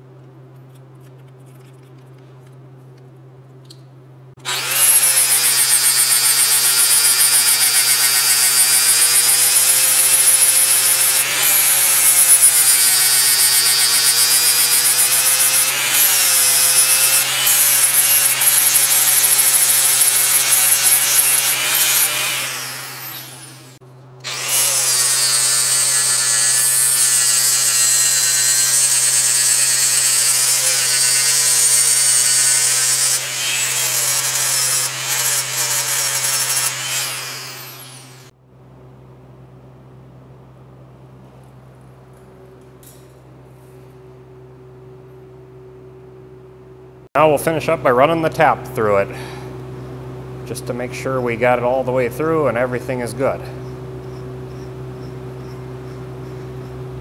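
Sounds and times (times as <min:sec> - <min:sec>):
angle grinder grinding metal: 0:04.4 - 0:38.3.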